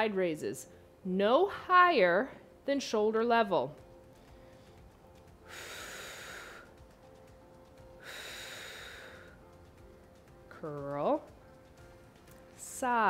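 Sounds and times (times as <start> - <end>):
woman breathing hard: 4.1 - 7.0, 8.0 - 9.6.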